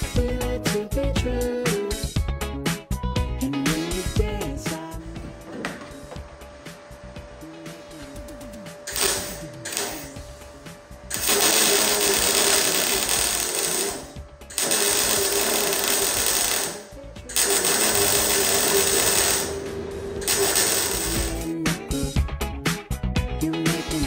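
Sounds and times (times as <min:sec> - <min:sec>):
welder arc crackling: 0:03.6 - 0:21.6.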